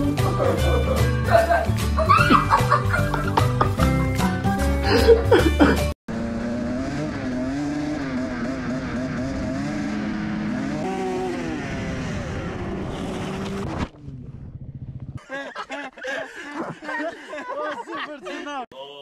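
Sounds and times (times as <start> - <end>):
dirt bike engines revving: 6.1 - 15.2.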